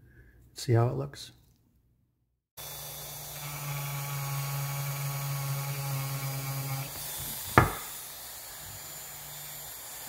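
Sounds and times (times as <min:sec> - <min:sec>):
rotary tool whining: 0:02.6 - 0:10.0
sharp knock: 0:07.6 - 0:07.9.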